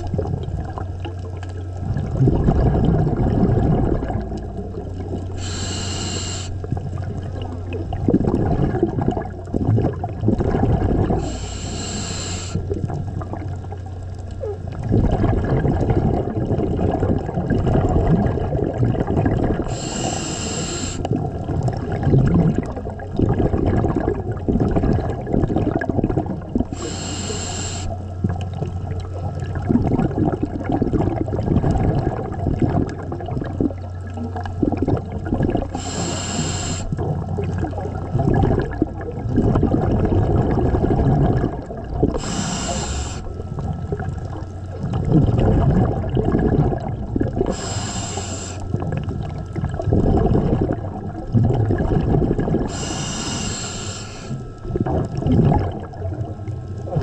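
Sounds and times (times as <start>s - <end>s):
exhaled bubbles rumbling: 0.0s - 57.0s
regulator inhalation hisses: 5.4s - 6.6s, 11.2s - 12.6s, 19.7s - 21.1s, 26.7s - 28.0s, 35.8s - 37.0s, 42.2s - 43.3s, 47.5s - 48.7s, 52.7s - 54.4s.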